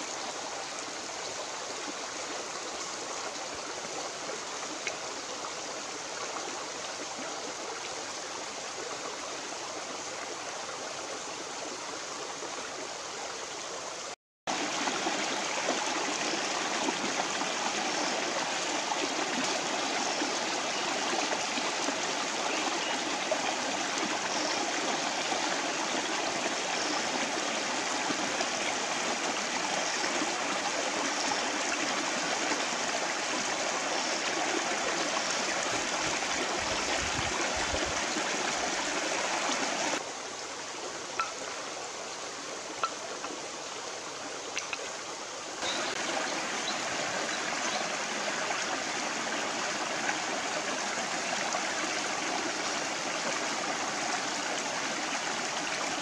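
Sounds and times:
flowing stream water: 0.0 - 56.0.

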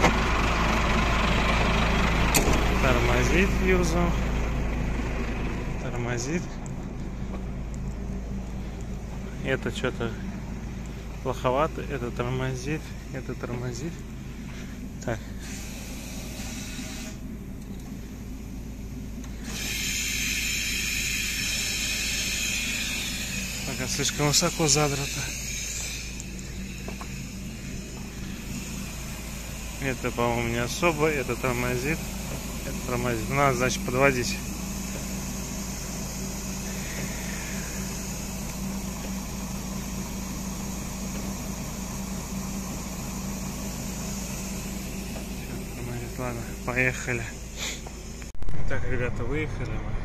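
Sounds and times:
diesel engine idling: 0.0 - 50.0
compressed air hissing: 10.1 - 48.4.

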